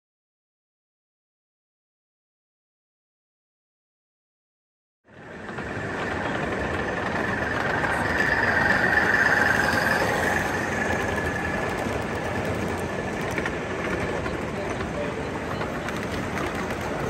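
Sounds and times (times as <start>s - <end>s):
model train whine passing: 5.1s - 17.0s.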